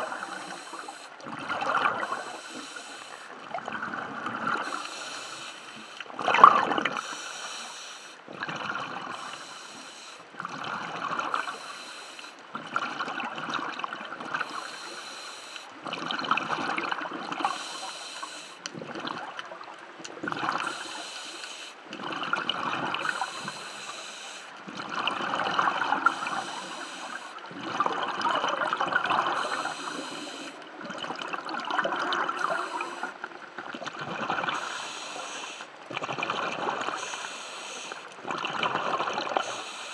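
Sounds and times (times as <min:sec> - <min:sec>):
regulator inhale hiss: 0:00.0 - 0:01.2, 0:02.0 - 0:03.4, 0:04.6 - 0:06.1, 0:07.0 - 0:08.2, 0:09.1 - 0:10.3, 0:11.3 - 0:12.4, 0:14.4 - 0:15.7, 0:17.4 - 0:18.7, 0:20.6 - 0:21.8, 0:23.0 - 0:24.6, 0:26.0 - 0:27.4, 0:29.3 - 0:30.6, 0:32.3 - 0:33.2, 0:34.5 - 0:35.7, 0:36.9 - 0:38.2, 0:39.3 - 0:39.9
exhaled bubbles gurgling: 0:00.0 - 0:07.3, 0:08.3 - 0:11.8, 0:12.4 - 0:15.2, 0:15.8 - 0:39.9.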